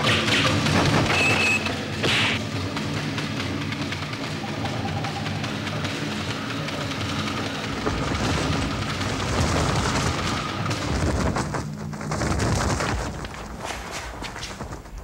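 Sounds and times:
rumbling boom with crackling: 7.8s - 14.8s.

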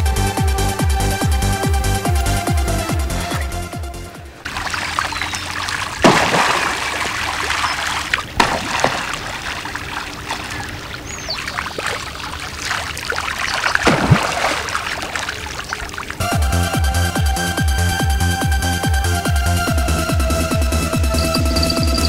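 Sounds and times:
water splashes: 2.1s - 16.3s
rain pattering on water: 4.4s - 16.2s.

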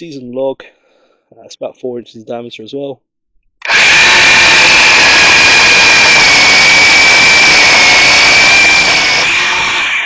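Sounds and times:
electric chainsaw whine: 3.6s - 10.0s.

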